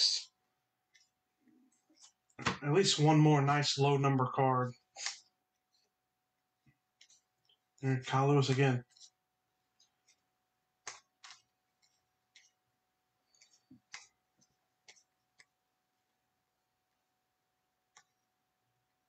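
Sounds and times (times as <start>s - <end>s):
cards being shuffled by hand: 4.8s - 5.9s, 9.8s - 12.6s, 13.3s - 15.6s.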